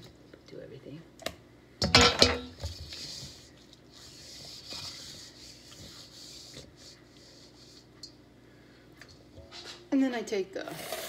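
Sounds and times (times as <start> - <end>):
hand scraping inside steel bowl: 2.6 - 8.0.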